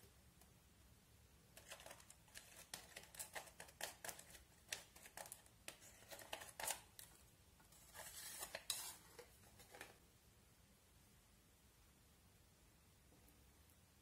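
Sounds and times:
plastic scrape: 0:01.6 - 0:07.1, 0:07.7 - 0:10.0
plastic tool scratching eyeshadow: 0:01.6 - 0:10.0.

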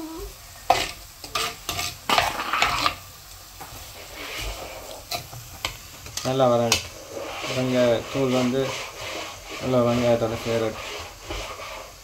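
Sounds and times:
metal spoon scraping clay pot: 0:00.7 - 0:03.0, 0:06.7 - 0:11.9.

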